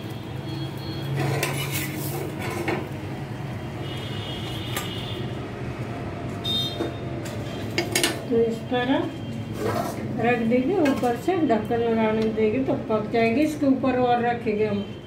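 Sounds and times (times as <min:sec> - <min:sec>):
steel spatula scraping on griddle: 0:01.0 - 0:02.9, 0:09.5 - 0:10.2.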